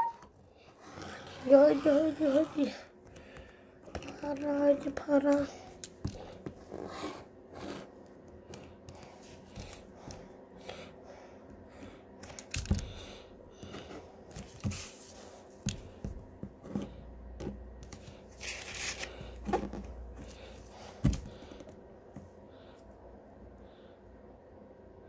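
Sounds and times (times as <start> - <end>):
paper rustling: 18.0 - 20.5.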